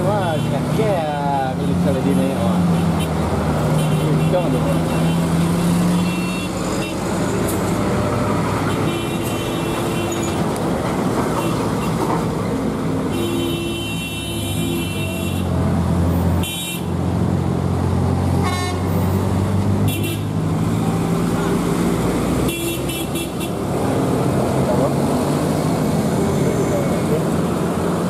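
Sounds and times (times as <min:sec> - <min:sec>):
vehicle engines humming: 0:00.0 - 0:28.0
vehicle horns tooting: 0:02.7 - 0:07.0, 0:08.6 - 0:10.4, 0:13.1 - 0:15.5, 0:16.4 - 0:16.9, 0:18.4 - 0:18.9, 0:19.9 - 0:20.4, 0:22.4 - 0:23.6.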